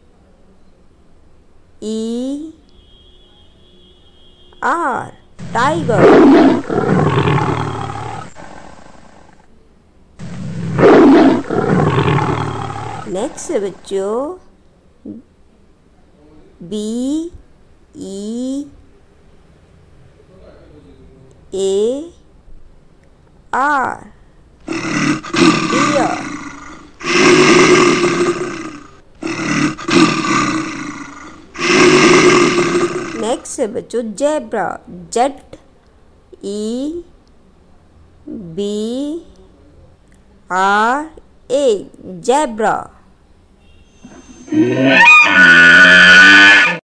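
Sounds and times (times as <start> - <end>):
tiger roaring: 5.4 - 9.4, 10.2 - 13.9, 24.6 - 33.5, 44.0 - 46.8.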